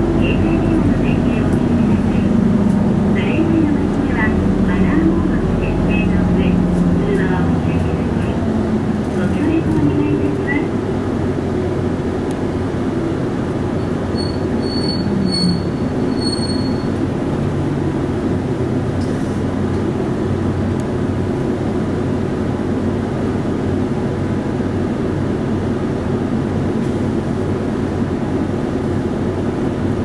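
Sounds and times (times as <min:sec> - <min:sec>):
bus diesel engine drone: 0:00.0 - 0:30.0
high brake squeal: 0:14.1 - 0:17.0.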